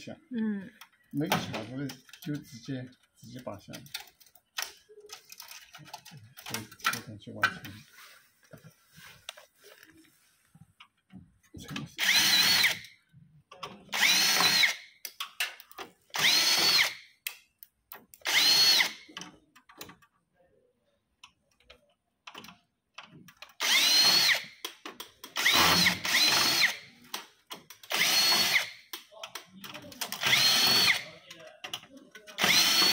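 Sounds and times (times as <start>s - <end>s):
cordless drill motor whine: 12.0s - 12.9s, 13.9s - 14.8s, 16.2s - 17.0s, 18.3s - 19.0s, 23.6s - 24.6s, 25.4s - 26.8s, 27.9s - 28.8s, 30.2s - 31.0s, 32.4s - 32.9s.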